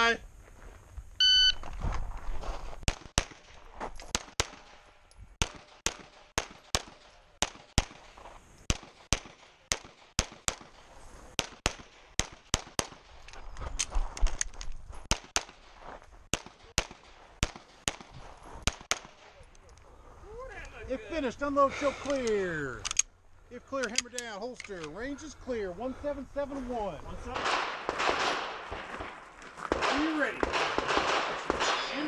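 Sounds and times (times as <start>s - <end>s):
pistol shots in pairs: 2.9s - 3.5s, 4.1s - 8.1s, 8.7s - 13.1s, 15.1s - 15.7s, 16.3s - 19.4s, 27.2s - 32.0s.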